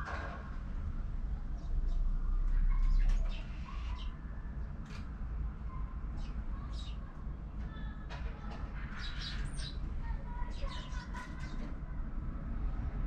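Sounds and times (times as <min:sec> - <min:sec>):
sparrows chirping: 0:01.5 - 0:04.9, 0:05.8 - 0:07.2, 0:08.6 - 0:11.7.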